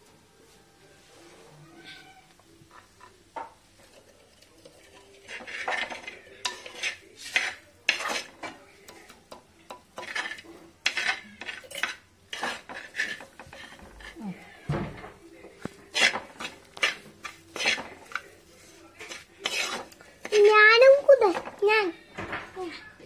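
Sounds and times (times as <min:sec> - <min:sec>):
scraping in earthenware pot: 0:03.8 - 0:09.2, 0:10.0 - 0:14.6, 0:15.8 - 0:21.6.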